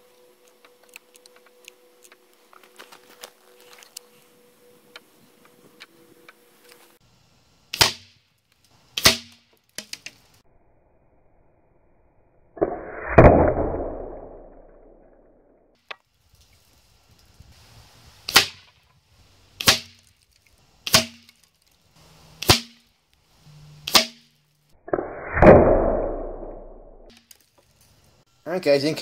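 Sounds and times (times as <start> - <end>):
air rifle shots: 7.7 - 8.2, 9.0 - 9.4, 18.3 - 18.7, 22.4 - 22.8, 23.9 - 24.2.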